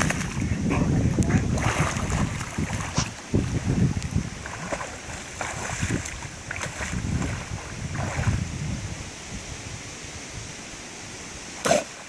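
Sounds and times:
water sloshing and splashing: 0.0 - 8.6.

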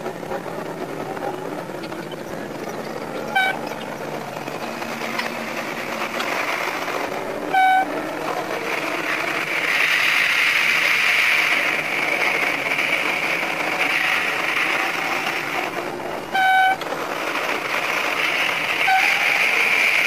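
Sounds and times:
railcar running on track: 0.0 - 20.0
train horn toots: 3.3 - 3.7, 7.5 - 8.0, 16.3 - 16.8, 18.8 - 19.4.

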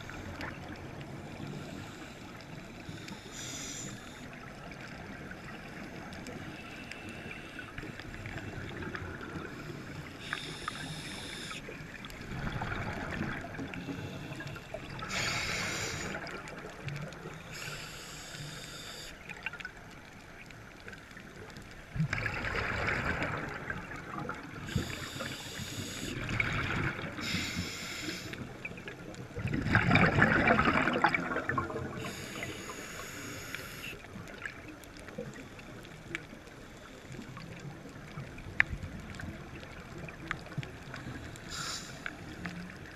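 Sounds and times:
regulator hissing inhalations: 1.4 - 4.4, 9.7 - 11.7, 13.8 - 16.3, 17.4 - 19.2, 24.6 - 26.3, 27.2 - 28.5, 32.0 - 34.0, 41.2 - 42.4
bubbling exhalations: 29.5 - 32.0.

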